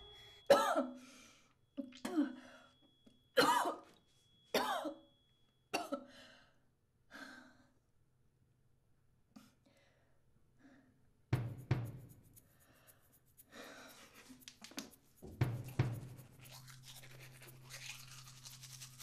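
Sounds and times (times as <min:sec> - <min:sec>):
woman coughing and choking: 0:00.5 - 0:01.0, 0:01.8 - 0:02.4, 0:03.4 - 0:03.9, 0:04.6 - 0:05.0, 0:05.7 - 0:06.0.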